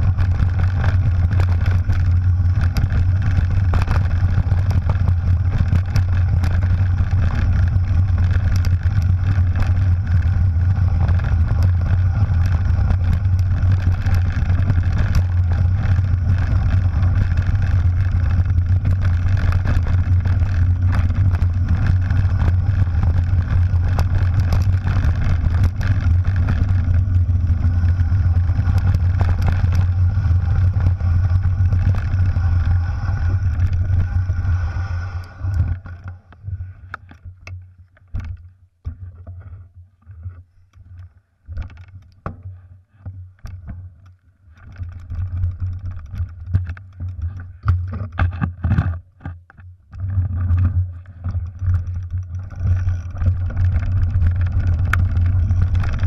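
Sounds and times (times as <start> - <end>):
tyres rumbling on gravel: 0.0 - 36.4, 50.0 - 56.0
bike clicks and rattles: 0.0 - 56.0.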